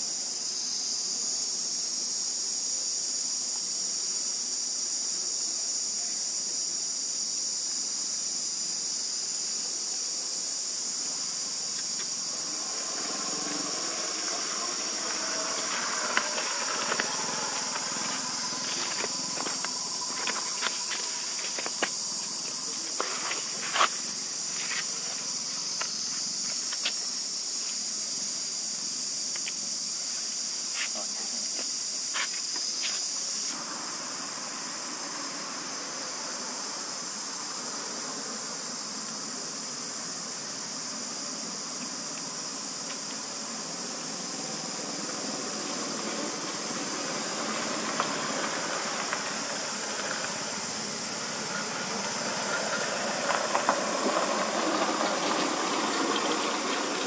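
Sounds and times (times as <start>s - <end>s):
high-pitched insect chorus: 0.0s - 57.0s
motor vehicle passing: 12.2s - 23.9s.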